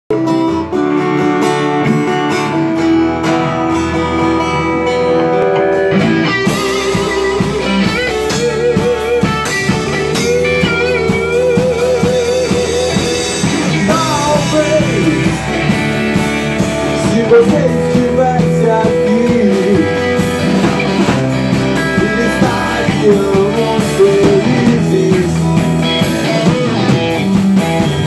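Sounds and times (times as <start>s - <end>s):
acoustic guitar strumming: 0.1s - 28.0s
electric guitar lead with vibrato: 0.1s - 28.0s.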